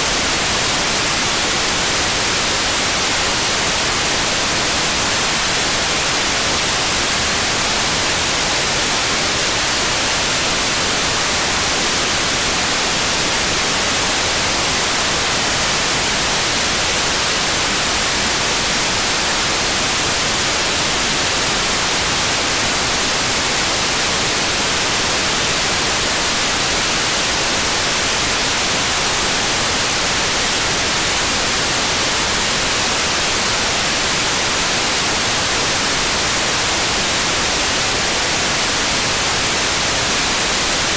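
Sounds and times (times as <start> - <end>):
radio receiver noise hiss: 0.0 - 40.9.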